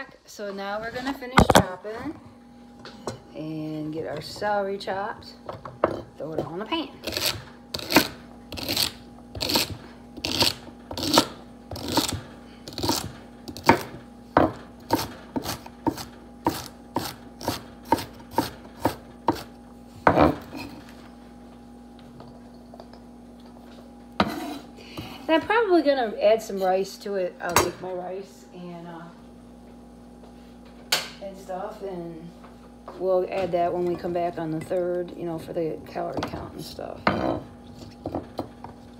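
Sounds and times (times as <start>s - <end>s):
knife chopping on wooden board: 7.1s - 20.4s.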